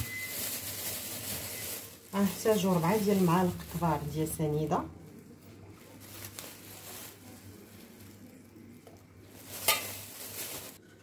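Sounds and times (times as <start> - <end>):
stirring in metal saucepan: 9.4 - 10.1
metal utensil clinking on pan: 9.6 - 10.0.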